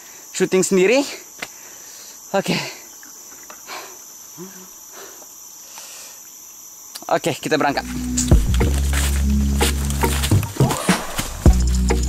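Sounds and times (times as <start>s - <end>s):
insect chorus drone: 0.0s - 12.0s.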